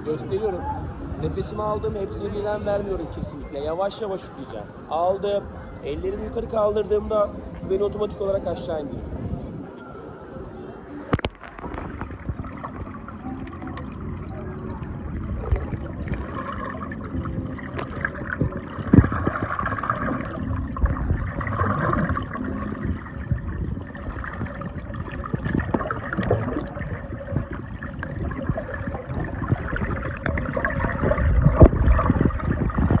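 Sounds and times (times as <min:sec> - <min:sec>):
low underwater rumble: 0:04.8 - 0:33.0
underwater air bubbles gurgling: 0:10.5 - 0:33.0.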